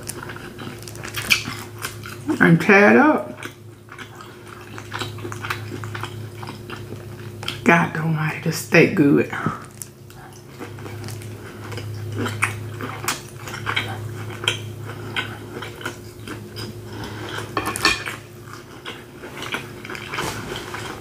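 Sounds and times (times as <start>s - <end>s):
chewing with wet mouth clicks: 0.0s - 2.3s, 3.4s - 7.6s, 9.6s - 20.8s
low steady hum: 0.0s - 21.0s.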